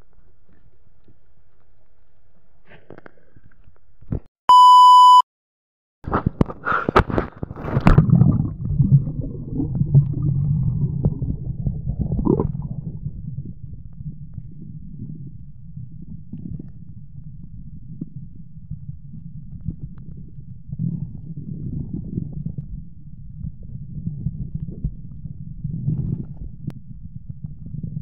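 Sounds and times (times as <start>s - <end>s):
electronic beep: 4.5s - 5.2s
muffled underwater rumble: 6.1s - 28.0s
water splashing: 7.6s - 13.0s.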